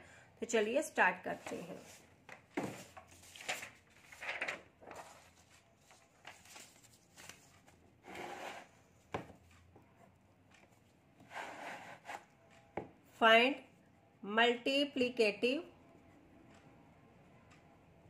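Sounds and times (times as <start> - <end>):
paper rustling: 2.6 - 8.6.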